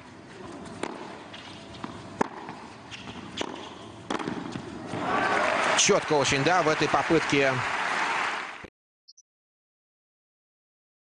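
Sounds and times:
tennis ball struck by racquet: 0.8s - 5.0s.

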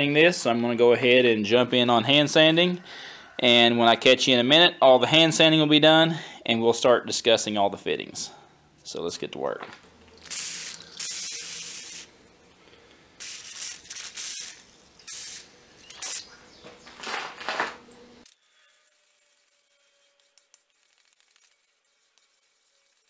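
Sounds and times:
sandpaper rasping on wet steel: 18.4s - 23.0s.

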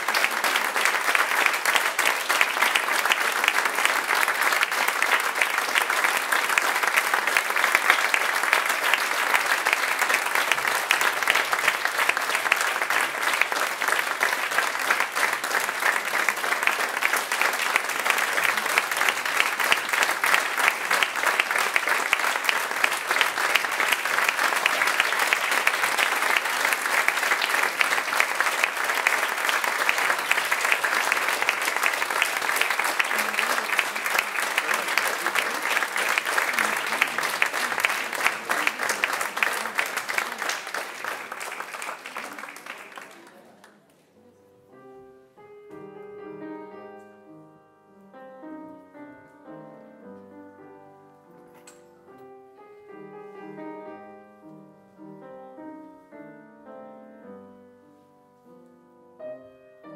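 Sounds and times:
audience applauding: 0.0s - 44.1s.

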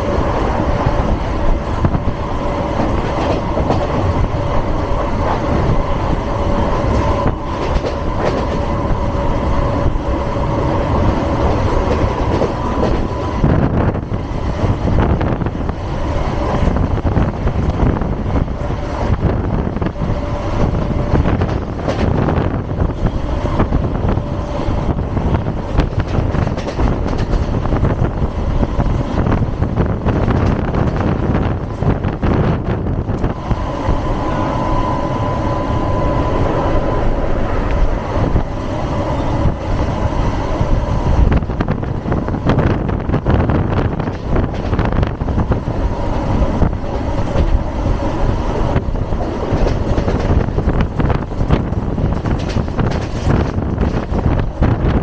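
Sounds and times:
train wheels rumbling on rails: 0.0s - 55.0s
thin steady whine: 32.8s - 41.7s.

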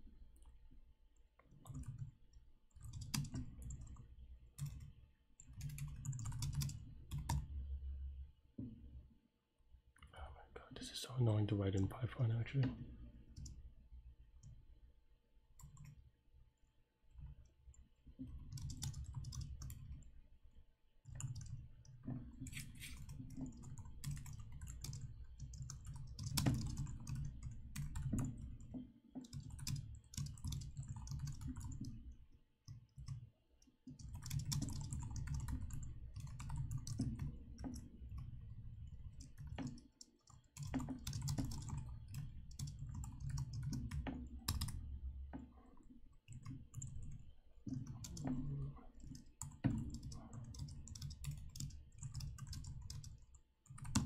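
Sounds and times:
typing on keyboard: 1.4s - 2.1s, 2.7s - 7.5s, 15.6s - 16.0s, 18.2s - 20.1s, 21.0s - 32.1s, 32.7s - 33.2s, 33.8s - 44.8s, 45.8s - 54.0s.

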